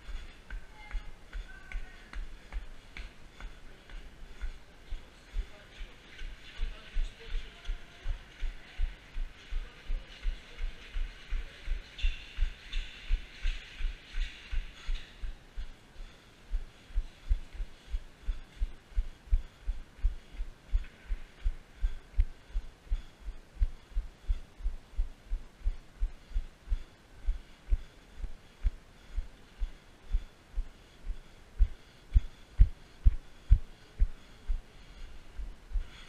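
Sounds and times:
footsteps jogging down steps: 0.0s - 36.0s.

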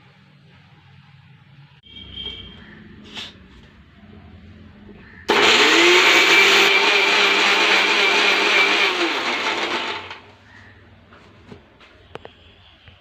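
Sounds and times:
mixer grinder motor whine: 5.3s - 10.3s.

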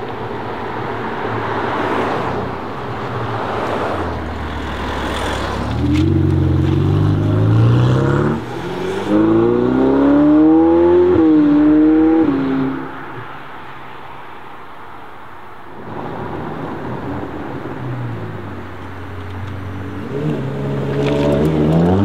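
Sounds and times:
broad rush of noise: 0.0s - 22.0s
sports car engine accelerating: 4.4s - 12.8s, 17.4s - 22.0s.

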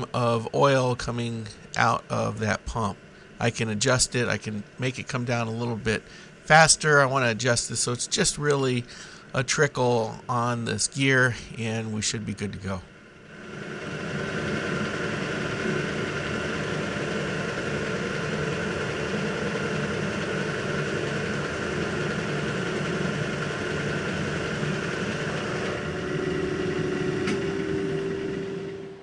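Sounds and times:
steady hum: 0.0s - 29.0s
milling machine running: 9.9s - 29.0s.

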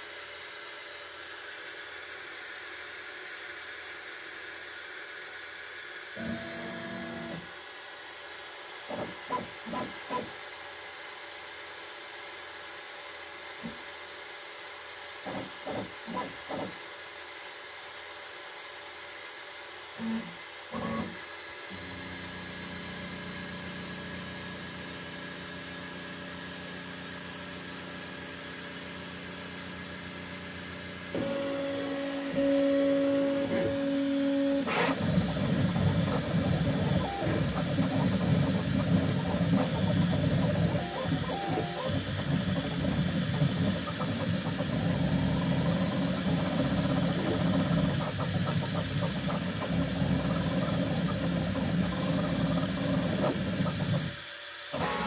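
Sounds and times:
fans humming: 29.8s - 54.2s
stepper motors whirring and buzzing: 30.2s - 55.0s.

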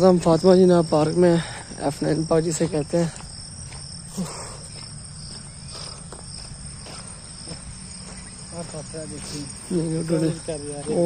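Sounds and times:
crickets trilling: 0.0s - 11.0s.

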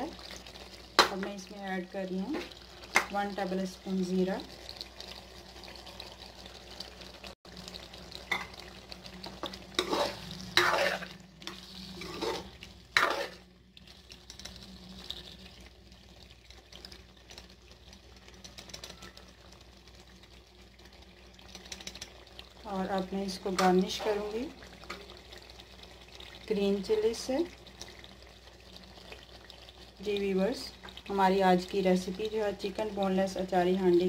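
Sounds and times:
chicken sizzling in oil: 0.0s - 34.0s
spatula scraping a pot: 9.7s - 13.4s.

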